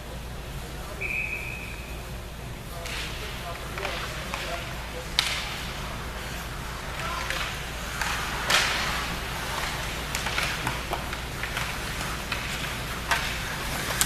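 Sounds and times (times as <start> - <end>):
skates scraping ice: 2.7 - 14.0
sticks striking puck: 2.8 - 14.0.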